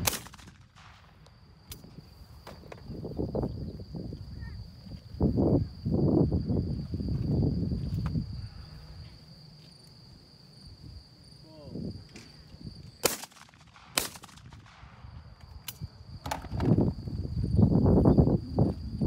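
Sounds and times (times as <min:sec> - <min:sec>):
shotgun shots: 0:00.0 - 0:01.1, 0:13.0 - 0:15.0.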